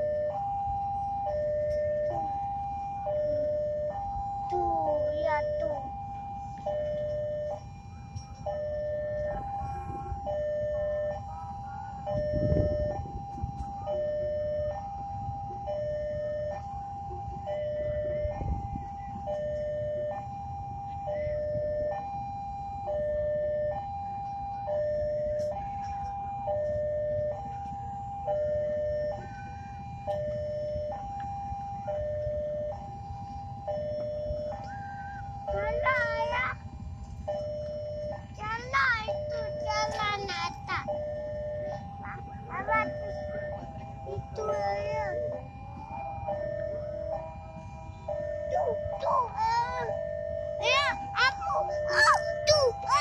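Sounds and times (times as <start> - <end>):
two-tone crossing alarm bell: 0.0 - 53.0.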